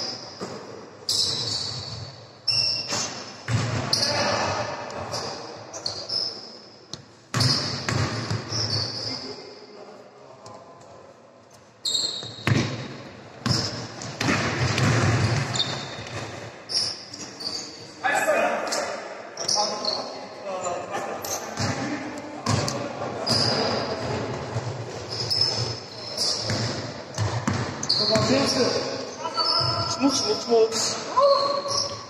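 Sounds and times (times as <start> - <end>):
sneaker squeaks: 0.0 - 9.4, 11.8 - 18.0, 18.6 - 20.2, 22.5 - 32.0
basketball bouncing on gym floor: 3.5 - 4.0, 7.3 - 8.6, 12.2 - 16.3, 23.4 - 28.7.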